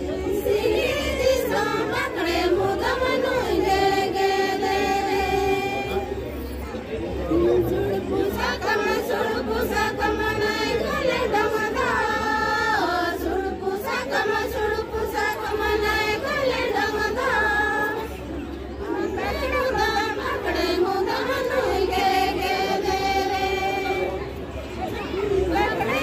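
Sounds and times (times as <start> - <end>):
women singing in unison: 0.0 - 6.2, 7.5 - 24.2, 25.4 - 26.0.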